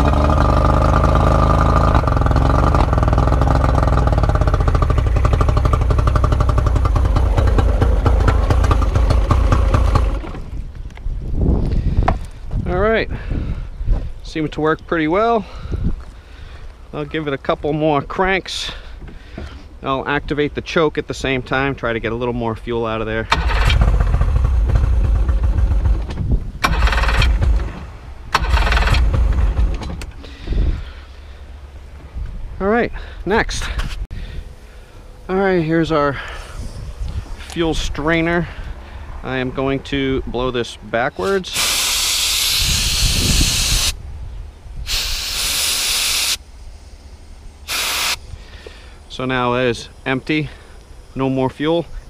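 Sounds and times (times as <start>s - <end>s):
outboard engine cranking: 0.0s - 10.7s, 23.2s - 30.9s
compressed air blow gun hissing: 41.2s - 44.0s, 44.8s - 51.2s.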